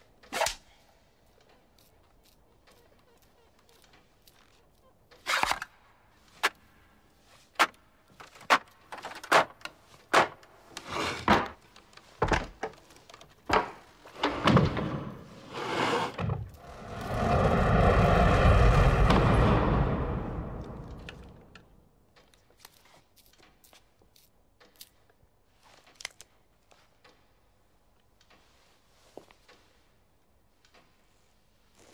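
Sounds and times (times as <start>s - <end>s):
loud rushing noise: 16.6s - 21.4s.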